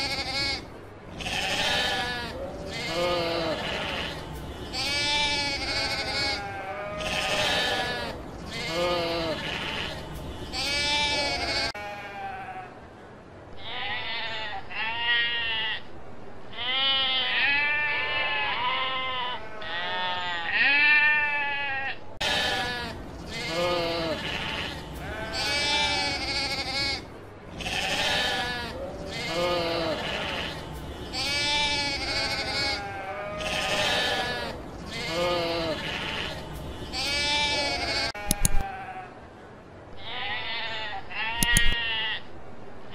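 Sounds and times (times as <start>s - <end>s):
sheep bleating: 0.0s - 12.7s, 16.6s - 39.1s.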